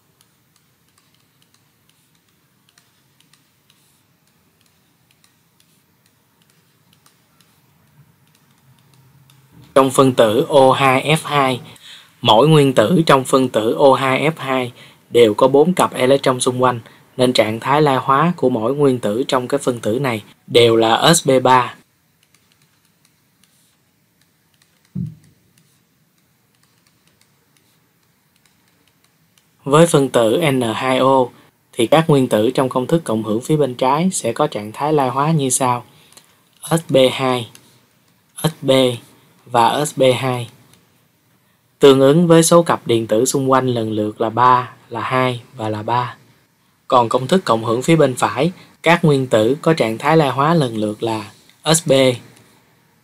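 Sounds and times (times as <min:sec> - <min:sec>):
stylus tapping on drawing tablet: 0:00.2 - 0:09.7, 0:24.5 - 0:25.8
low thump: 0:25.0 - 0:25.2.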